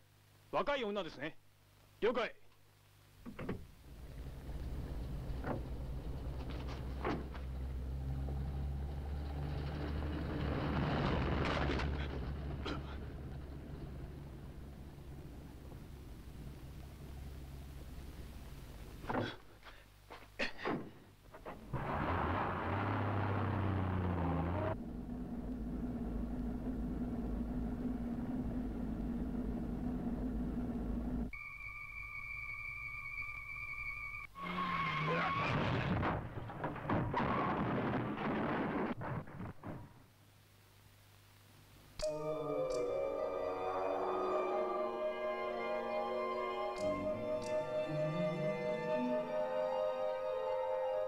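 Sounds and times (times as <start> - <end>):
dump truck engine droning: 3.9 - 18.0, 21.6 - 31.3, 42.0 - 51.0.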